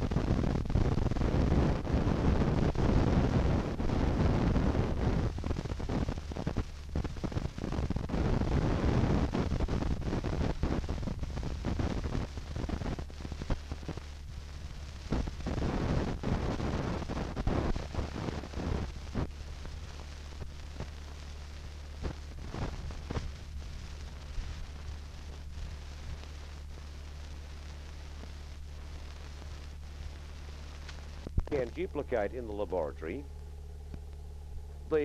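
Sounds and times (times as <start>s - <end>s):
low hum: 10.8s - 35.0s
film clicks and pops: 29.3s - 31.5s, 33.3s - 34.3s.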